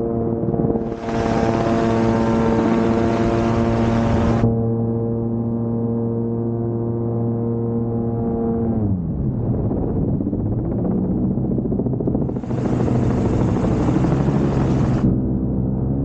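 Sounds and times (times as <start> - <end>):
gyroplane engine and propeller: 0.1 - 8.2, 9.0 - 15.7
wind hiss: 0.8 - 4.4, 12.3 - 15.1.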